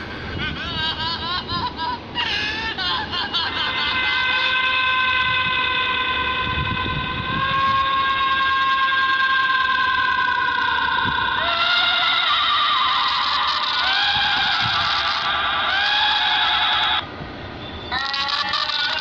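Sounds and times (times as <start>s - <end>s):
steady high-pitched tone: 0.0s - 19.0s.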